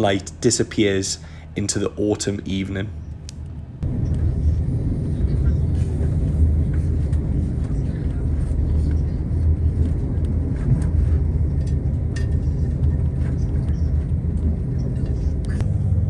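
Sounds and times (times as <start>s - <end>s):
railcar engine drone: 0.0s - 16.0s
train wheels on rails: 3.8s - 15.8s.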